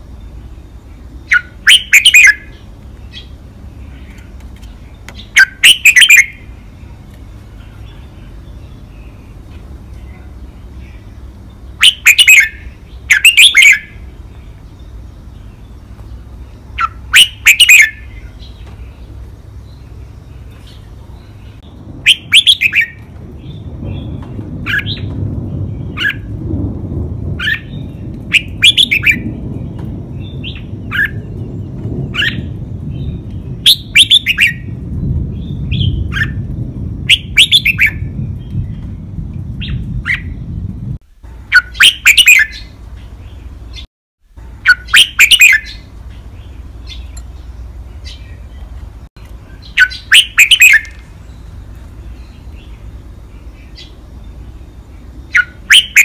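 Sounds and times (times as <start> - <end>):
bird singing whistled phrases: 1.3 - 3.3, 5.2 - 6.5, 11.8 - 14.0, 16.8 - 18.5, 22.1 - 23.0, 27.4 - 29.2, 33.7 - 34.6, 37.1 - 38.0, 41.5 - 42.7, 44.6 - 45.9, 49.5 - 51.0, 55.3 - 56.0.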